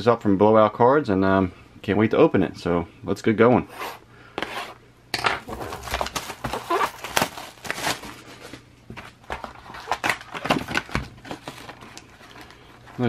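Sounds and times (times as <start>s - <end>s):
plastic wrap tearing and crinkling: 5.4s - 8.6s, 9.2s - 13.0s.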